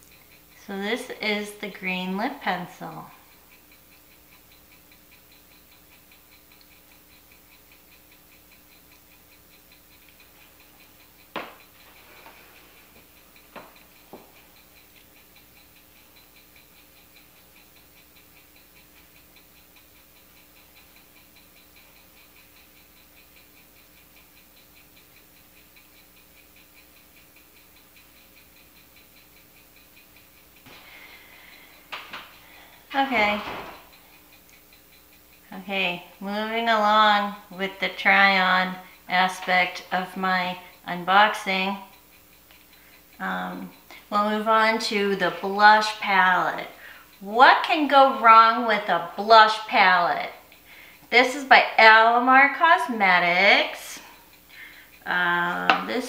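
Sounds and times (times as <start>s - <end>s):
faint mechanical ticking: 0.0s - 56.0s
sharp click: 33.2s - 35.1s.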